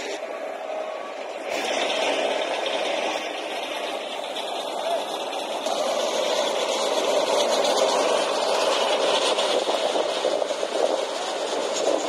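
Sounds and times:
road paver diesel engine running: 0:00.0 - 0:12.0.

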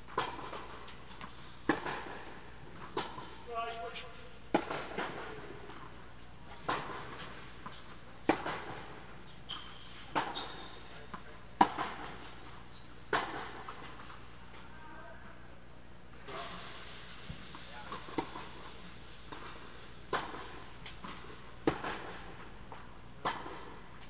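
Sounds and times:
tennis racket hitting ball: 0:00.1 - 0:03.5, 0:04.5 - 0:05.9, 0:06.5 - 0:14.2, 0:19.3 - 0:22.4, 0:23.2 - 0:23.8.

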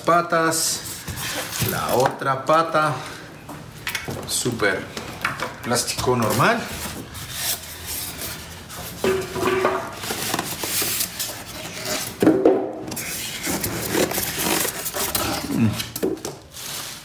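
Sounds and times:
rustling and handling knocks: 0:08.9 - 0:10.9.

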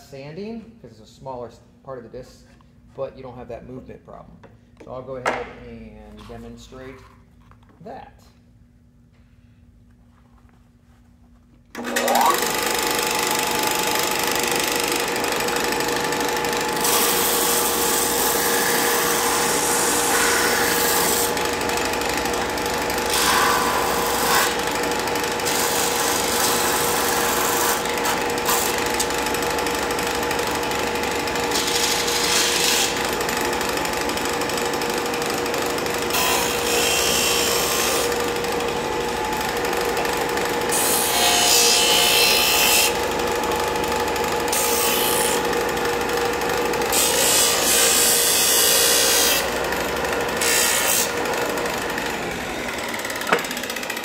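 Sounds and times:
sander motor hum: 0:48.7 - 0:54.0.

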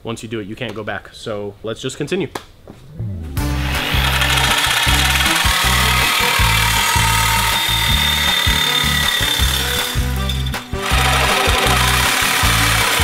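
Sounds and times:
reciprocating saw cutting metal: 0:03.5 - 0:13.0.

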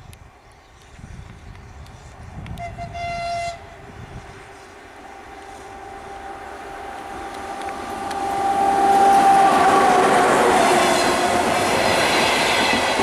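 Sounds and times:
train rumble and hum: 0:00.0 - 0:13.0
high-pitched locomotive horn: 0:02.6 - 0:03.7, 0:05.0 - 0:13.0.

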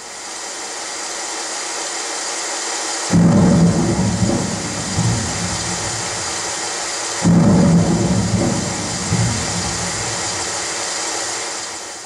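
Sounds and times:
rain hiss: 0:00.0 - 0:12.0
low thunder rumble: 0:03.1 - 0:10.9.

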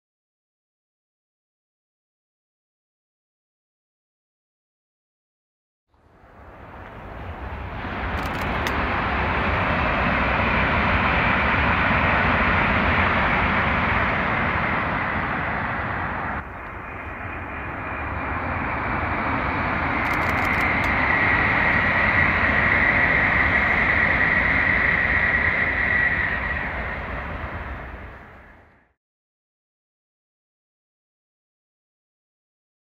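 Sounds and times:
high-speed train rushing roar: 0:05.9 - 0:29.0
train high whine: 0:05.9 - 0:29.0.

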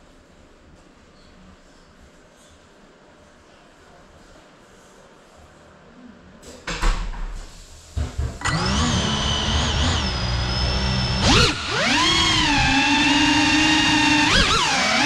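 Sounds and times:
drone motors whining: 0:08.4 - 0:15.0.

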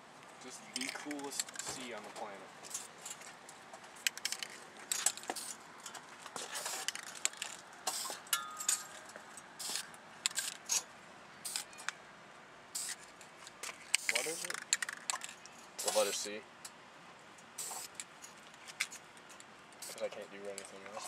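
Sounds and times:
spray paint can hissing: 0:05.2 - 0:05.6, 0:06.6 - 0:08.2, 0:09.6 - 0:10.8, 0:11.4 - 0:11.7, 0:12.7 - 0:13.0, 0:13.9 - 0:15.0, 0:15.8 - 0:16.2, 0:17.6 - 0:18.0, 0:19.8 - 0:20.0.

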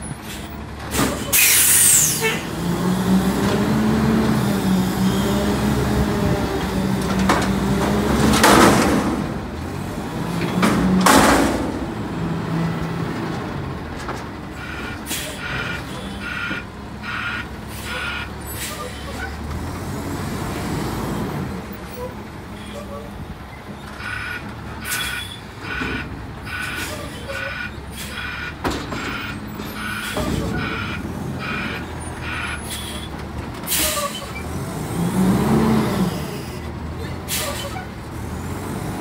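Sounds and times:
garbage truck engine revving: 0:00.2 - 0:39.0
regular beeping: 0:23.8 - 0:32.7.

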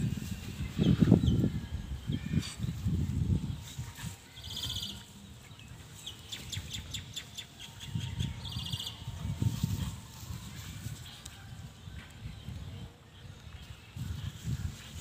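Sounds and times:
small birds chirping: 0:03.6 - 0:09.4.

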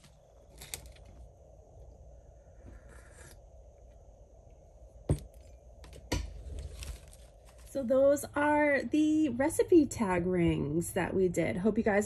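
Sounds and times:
room hum: 0:00.0 - 0:12.0
faint rustling: 0:06.3 - 0:07.9.

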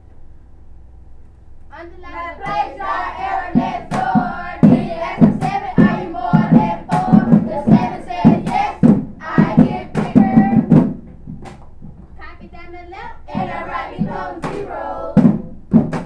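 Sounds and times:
children chanting in rhythm: 0:01.9 - 0:10.8, 0:13.3 - 0:15.4
hand claps: 0:02.4 - 0:02.7, 0:03.9 - 0:08.8, 0:14.4 - 0:16.0.

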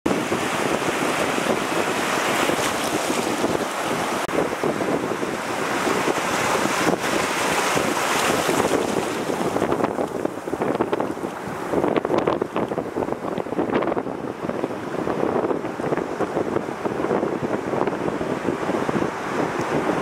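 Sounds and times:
wind buffeting microphone: 0:00.1 - 0:20.0
surf breaking in shallows: 0:00.3 - 0:04.5, 0:05.3 - 0:12.7.

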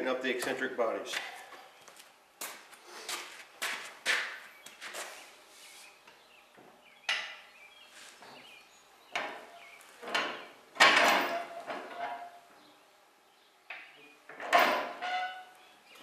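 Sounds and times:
metal clunks and scrapes: 0:09.2 - 0:12.4.

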